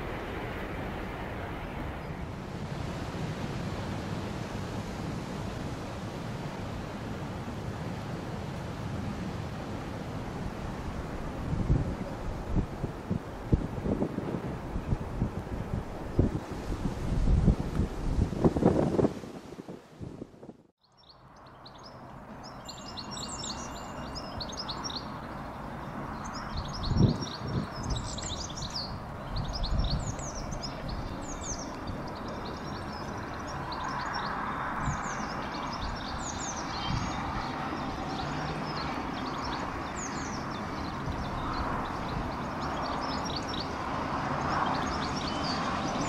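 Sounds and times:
small birds chirping: 0:20.8 - 0:46.0.

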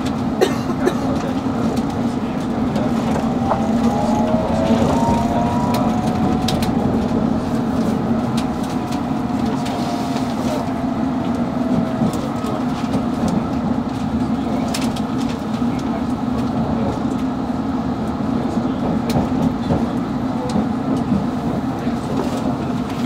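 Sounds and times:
train wheels rumbling on rail: 0:00.0 - 0:23.0
faint whine falling in pitch: 0:02.2 - 0:13.6.

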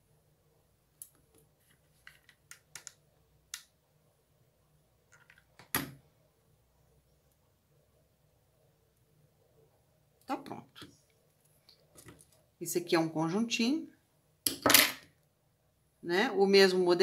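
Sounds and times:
small clicks and taps: 0:01.0 - 0:03.7.

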